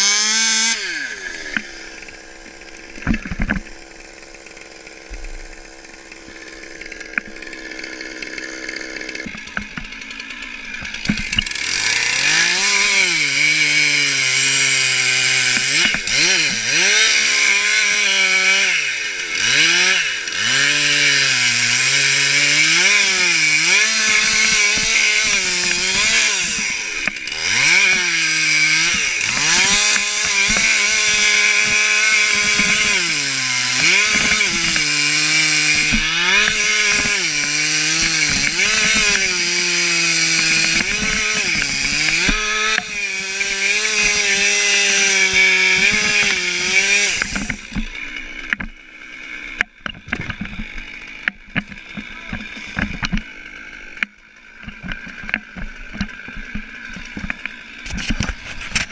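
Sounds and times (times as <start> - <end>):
chainsaw cutting tree trunk: 0.0 - 58.9
knocks and crackles: 1.5 - 4.0, 4.9 - 13.0, 22.4 - 48.8, 49.5 - 53.3, 53.9 - 58.9.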